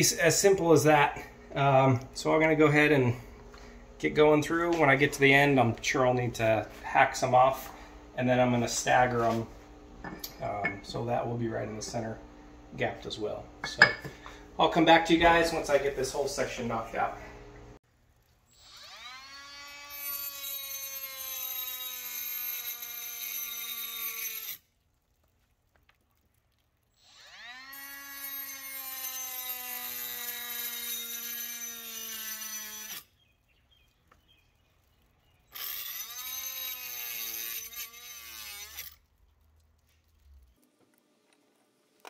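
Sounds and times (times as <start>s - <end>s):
cut-off tool cutting wood: 27.0s - 33.1s, 35.5s - 39.0s.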